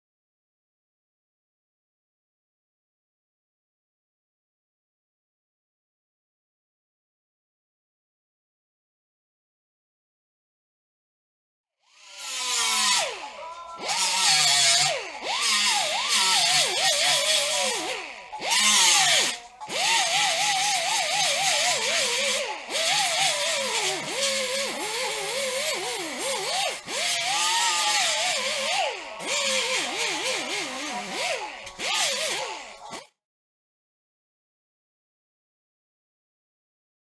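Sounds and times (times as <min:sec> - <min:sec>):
air grinder whining on metal: 0:11.9 - 0:33.2.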